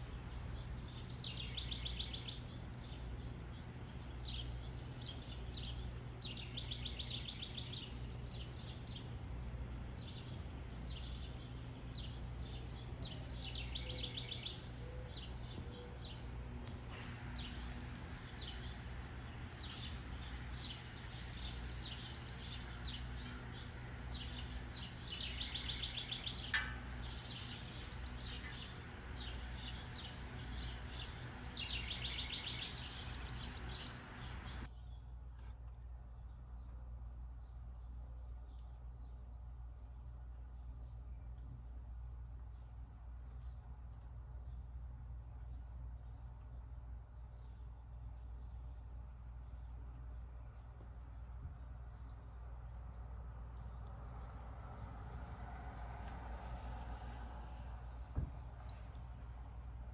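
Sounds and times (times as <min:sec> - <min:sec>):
songbirds trilling: 0:00.0 - 0:35.1
low background hum: 0:00.0 - 0:59.9.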